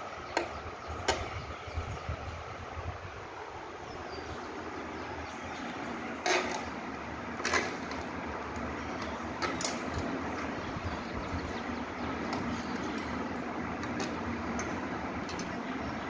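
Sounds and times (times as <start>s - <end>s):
scrapes and clatters of fan parts: 5.6s - 11.2s, 12.0s - 15.7s.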